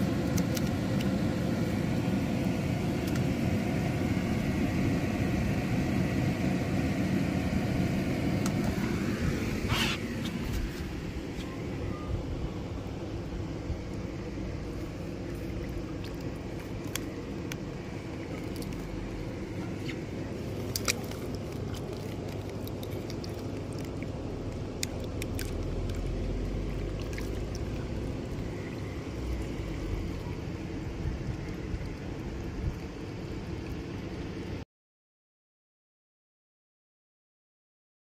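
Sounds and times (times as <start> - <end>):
steady low rumble: 0.0 - 34.6
small clicks and splashes: 0.2 - 1.2, 3.0 - 3.3, 15.3 - 34.6
water running into pool: 12.3 - 34.6.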